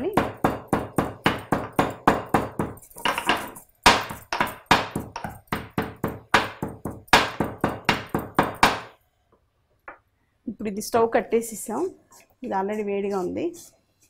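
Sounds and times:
pestle pounding in mortar: 0:00.0 - 0:08.9.

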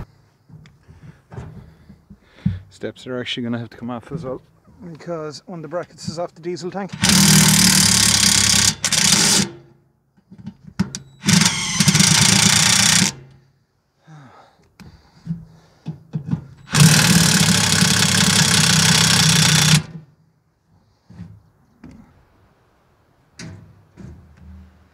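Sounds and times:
impact wrench hammering: 0:07.0 - 0:09.7, 0:10.8 - 0:13.4, 0:16.6 - 0:20.0.

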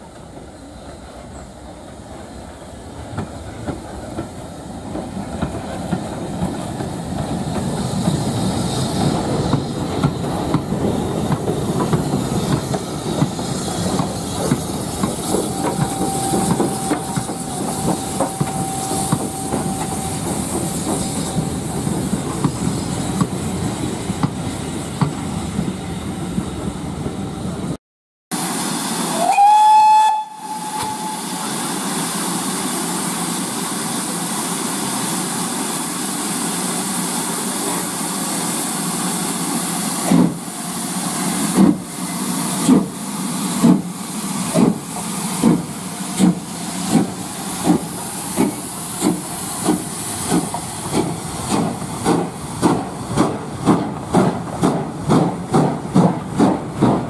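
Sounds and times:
coaches rolling on rails: 0:00.0 - 0:25.7, 0:44.5 - 0:57.0
steam hissing: 0:00.1 - 0:26.2, 0:28.4 - 0:57.0
steam locomotive whistle: 0:15.4 - 0:21.6, 0:28.9 - 0:32.0.

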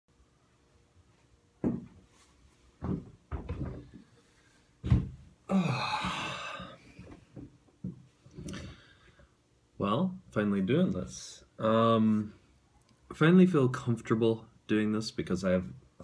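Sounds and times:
dull thumps and knocks: 0:01.6 - 0:02.0, 0:02.8 - 0:04.1, 0:04.8 - 0:05.3, 0:06.1 - 0:08.5.

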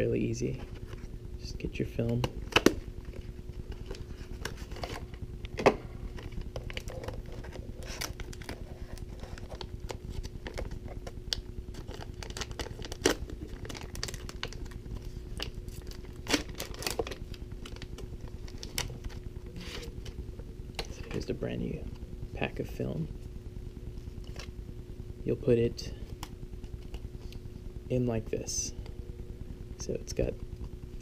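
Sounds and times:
foil pouch tearing and crinkling: 0:06.2 - 0:20.2.

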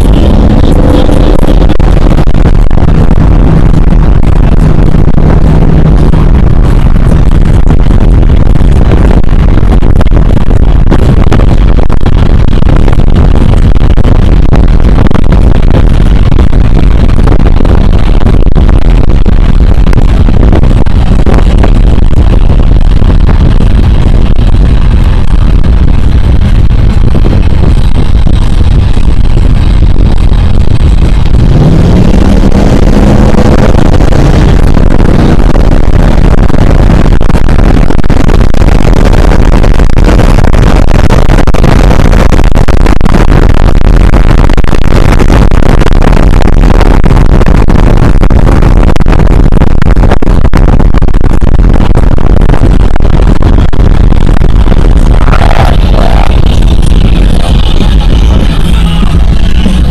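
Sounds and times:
truck engine accelerating: 0:00.0 - 0:16.4, 0:17.0 - 0:37.1, 0:54.9 - 0:59.9
road noise: 0:00.0 - 0:42.4, 0:53.8 - 0:59.9
wind noise: 0:00.0 - 0:59.9.

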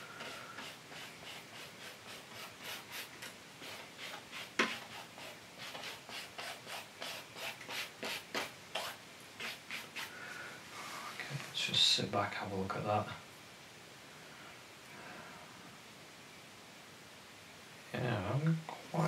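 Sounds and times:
brush scrubbing on canvas: 0:00.0 - 0:10.2.

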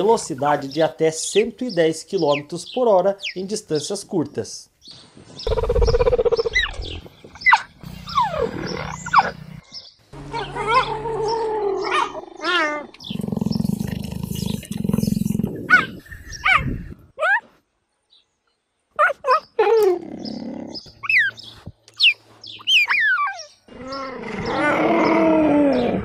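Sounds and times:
cheetah chirps and yelps: 0:05.5 - 0:09.4, 0:15.6 - 0:17.5, 0:20.7 - 0:21.4, 0:22.0 - 0:26.0.

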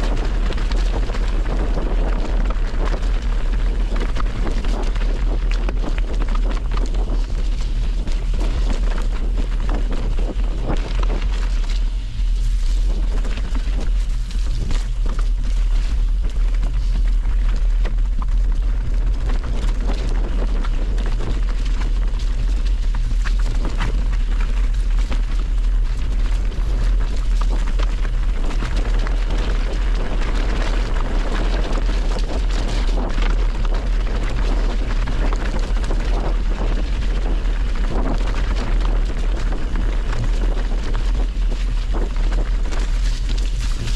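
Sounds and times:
wind buffeting microphone: 0:00.0 - 0:43.9.

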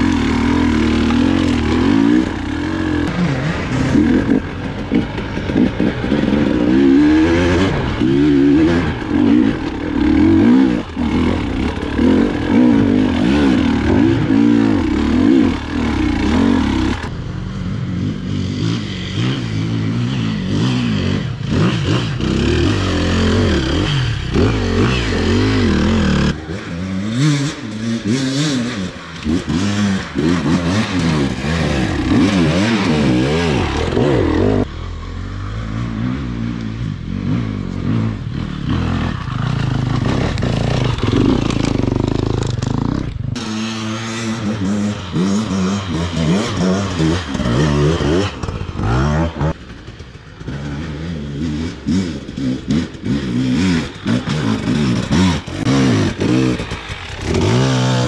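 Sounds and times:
clatter and scraping over ground: 0:00.0 - 0:06.8, 0:07.5 - 0:17.1, 0:37.6 - 0:58.0
dirt bike engines revving: 0:00.0 - 0:58.0.

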